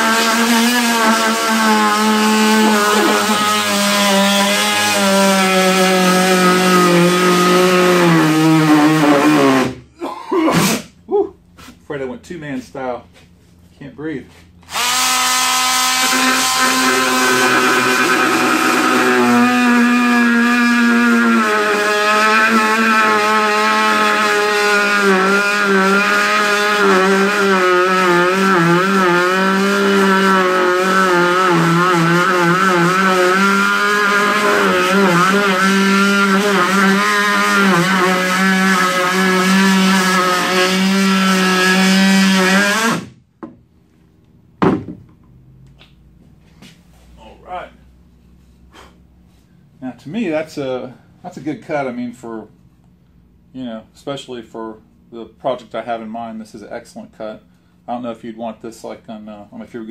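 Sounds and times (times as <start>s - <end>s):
multi-tool motor whine: 0.0s - 9.8s, 14.6s - 43.2s.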